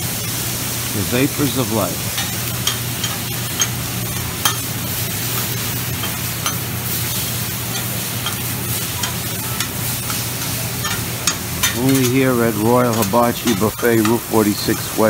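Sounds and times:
food sizzling on a griddle: 0:00.0 - 0:15.0
spatula clacking on steel: 0:02.1 - 0:15.0
metal spatulas scraping: 0:02.2 - 0:15.0.

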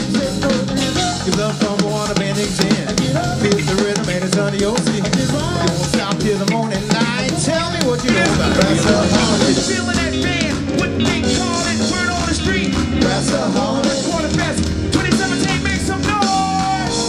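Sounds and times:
drum kit: 0:00.0 - 0:17.0
person singing into a microphone: 0:00.0 - 0:17.0
trumpet: 0:08.1 - 0:13.6
trombone: 0:08.1 - 0:14.4.

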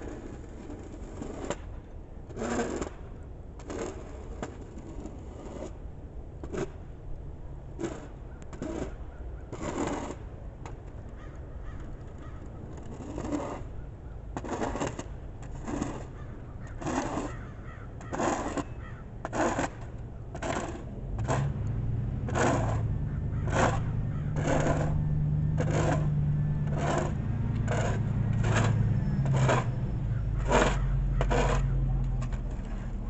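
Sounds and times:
snow shovel scraping sidewalk: 0:00.0 - 0:01.7, 0:02.3 - 0:03.0, 0:03.6 - 0:05.8, 0:07.8 - 0:09.0, 0:09.6 - 0:10.2, 0:12.8 - 0:13.8, 0:14.4 - 0:33.0
vehicle engine humming: 0:15.1 - 0:33.0.

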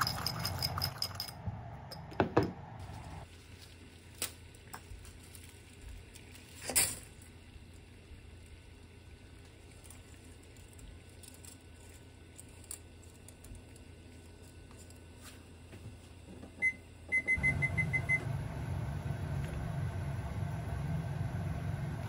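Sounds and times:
microwave oven humming: 0:04.4 - 0:22.0
microwave keypad beeps: 0:16.6 - 0:18.3.

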